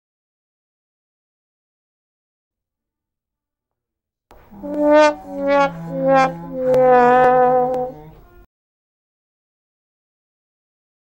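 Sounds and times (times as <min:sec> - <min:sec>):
sad trombone descending notes: 0:04.4 - 0:08.4.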